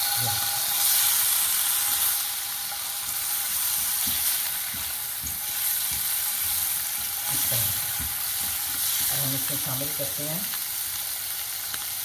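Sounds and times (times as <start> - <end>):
mushrooms sizzling in butter: 0.0 - 12.0
spatula knocking against pan: 3.8 - 7.2.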